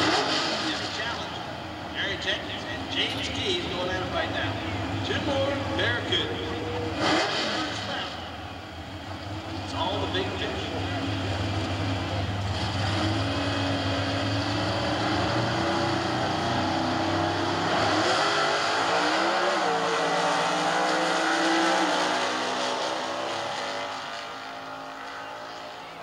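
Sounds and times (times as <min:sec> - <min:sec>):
drag car engines accelerating: 0:00.0 - 0:26.0.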